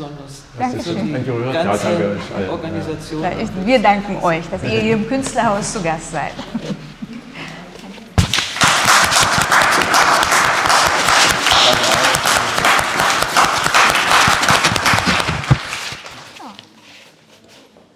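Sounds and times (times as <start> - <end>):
audience applauding: 8.3 - 16.4.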